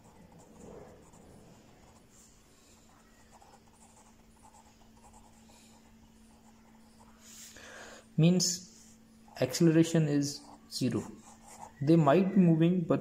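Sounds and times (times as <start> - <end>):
pen scratching on paper: 0.0 - 7.3, 10.4 - 11.8
faint steady hum: 0.0 - 13.0.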